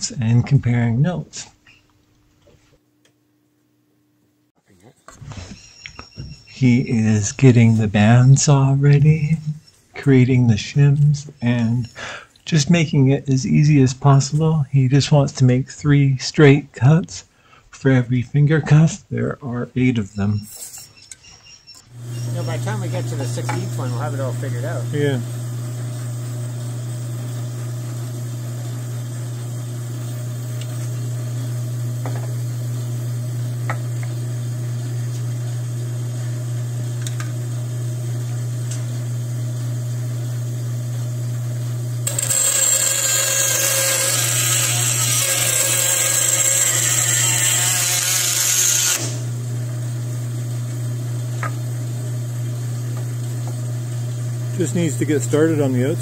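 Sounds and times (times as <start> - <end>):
bandsaw motor humming: 21.9 - 56.0
bandsaw cutting plastic pipe: 42.0 - 49.4.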